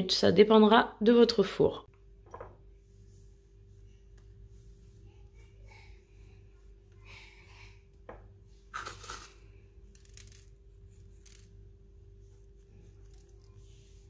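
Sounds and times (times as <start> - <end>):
seeds sprinkled onto dough: 8.5 - 14.0.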